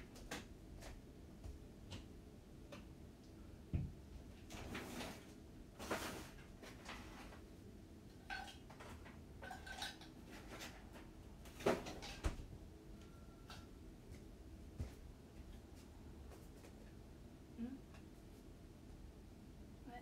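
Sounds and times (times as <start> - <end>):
dishes clattering and clinking: 8.2 - 10.8.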